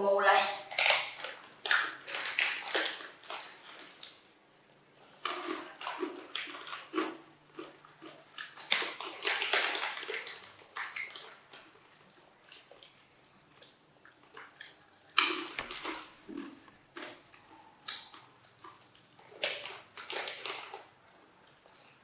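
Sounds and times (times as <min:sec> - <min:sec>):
monkey crunching peanuts: 0:00.6 - 0:04.3, 0:05.0 - 0:21.0
foil snack packets crinkling: 0:00.7 - 0:04.2, 0:05.0 - 0:11.7, 0:14.6 - 0:17.2, 0:17.9 - 0:20.9.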